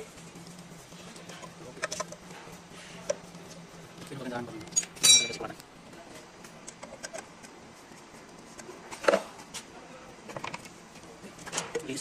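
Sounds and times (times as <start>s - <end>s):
metal clank: 4.8s - 5.5s.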